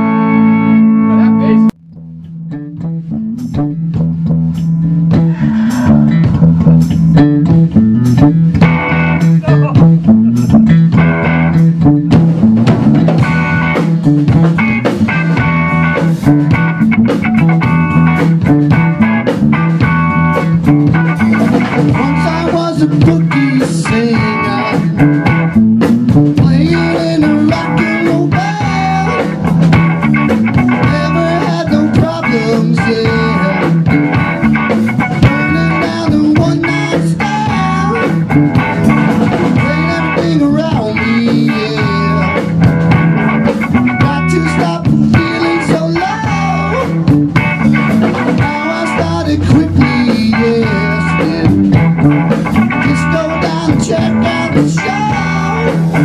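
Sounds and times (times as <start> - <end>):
bass line: 0.0 - 56.0
live rock band playing: 0.0 - 56.0
drum hits: 3.4 - 23.2, 23.8 - 32.2, 33.0 - 55.2.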